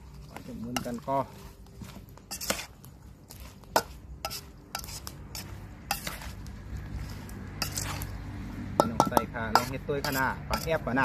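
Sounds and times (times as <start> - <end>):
spoon scraping in bowl: 0.0 - 8.2, 8.8 - 11.0
spoon clinking on metal bowl: 8.8 - 10.8.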